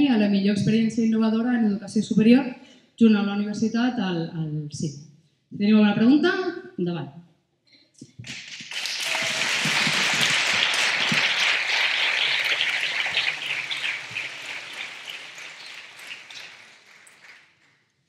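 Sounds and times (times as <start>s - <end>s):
audience applauding: 8.1s - 17.8s.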